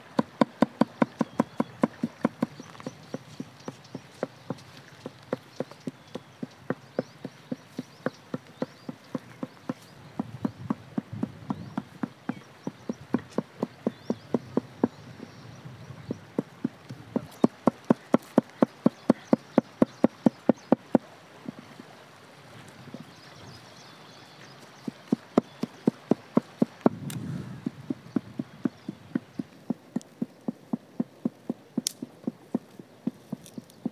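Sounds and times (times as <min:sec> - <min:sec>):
cleaver chopping on wood: 0:00.2 - 0:03.2.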